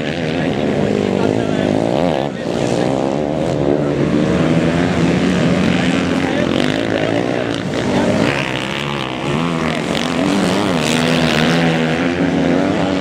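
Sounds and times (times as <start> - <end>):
motocross bike engines revving: 0.0 - 13.0.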